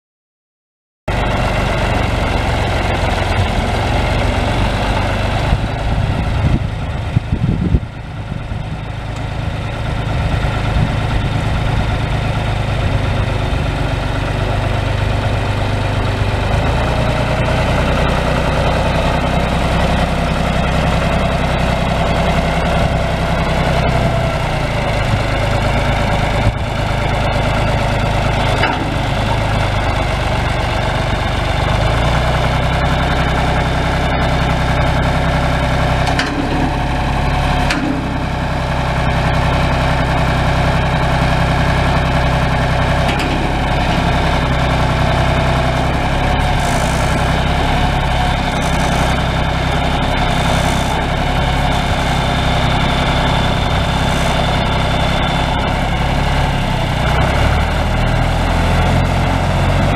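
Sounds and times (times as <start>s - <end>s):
tractor diesel engine running: 1.1s - 59.9s
high whine: 42.0s - 57.0s.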